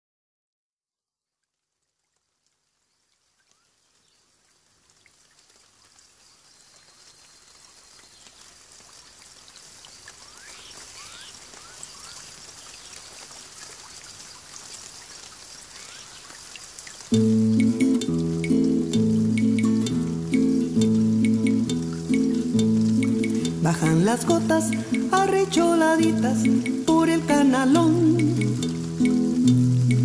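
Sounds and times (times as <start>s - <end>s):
water drops pattering: 8.0s - 30.0s
faint chirps: 9.9s - 13.2s.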